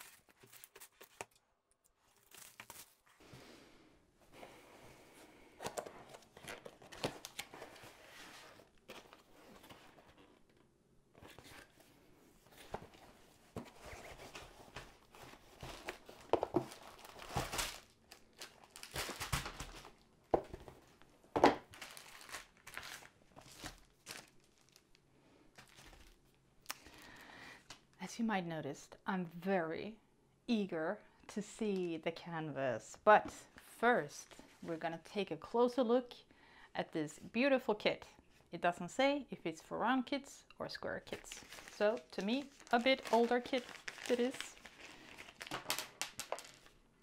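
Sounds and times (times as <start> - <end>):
plastic wrap rustling: 12.5 - 20.0, 21.6 - 26.2, 41.1 - 46.8.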